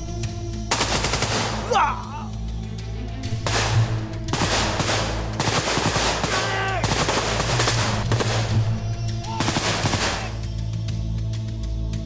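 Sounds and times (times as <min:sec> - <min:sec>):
low background music: 0:00.0 - 0:12.0
automatic rifle fire: 0:00.7 - 0:01.7, 0:03.4 - 0:08.7, 0:09.3 - 0:10.4.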